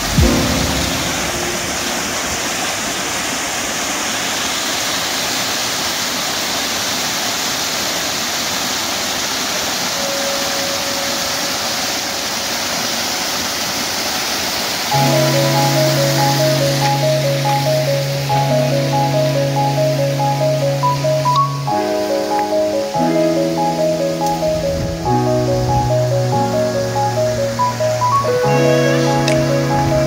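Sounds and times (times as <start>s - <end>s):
stream cascading over boulders: 0.0s - 30.0s.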